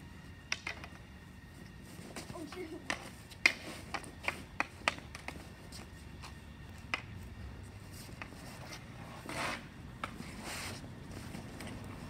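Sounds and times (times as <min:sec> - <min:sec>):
stick scraping pavement: 0:01.6 - 0:12.0
hockey stick tapping ball: 0:02.8 - 0:07.2.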